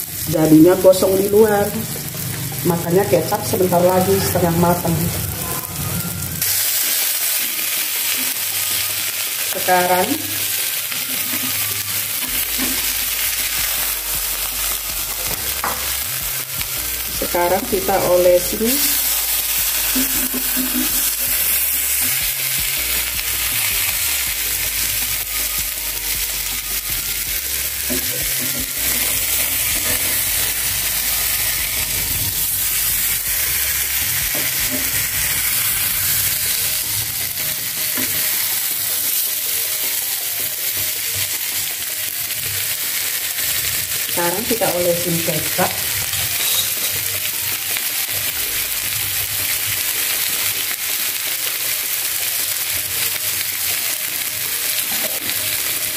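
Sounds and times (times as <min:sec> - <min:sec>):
fish sizzling in a pan: 0:00.0 - 0:55.9
tongs and spatula scraping pan: 0:27.9 - 0:36.8, 0:45.6 - 0:47.1.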